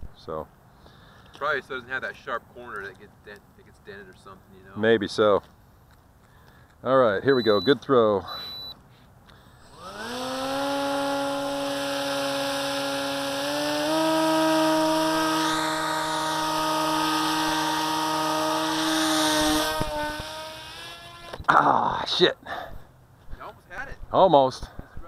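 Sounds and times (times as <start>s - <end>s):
electric motor and propeller whine: 9.5s - 21.5s.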